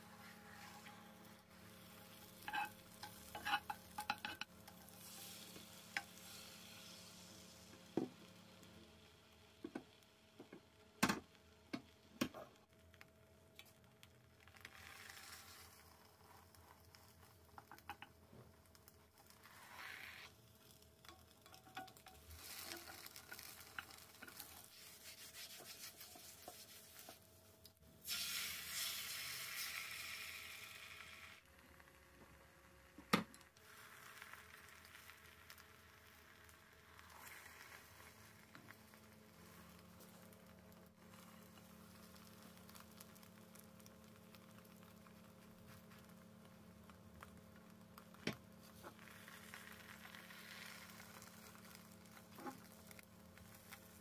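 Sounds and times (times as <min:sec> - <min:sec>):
egg sizzling in a pan: 0:00.0 - 0:54.0
spatulas tapping on pan: 0:02.4 - 0:04.5.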